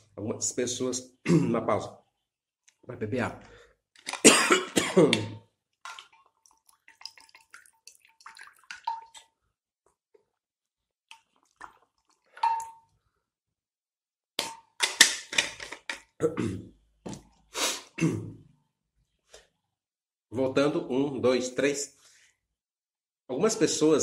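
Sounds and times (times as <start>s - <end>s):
liquid sounds and swallows: 11.1s - 13.0s.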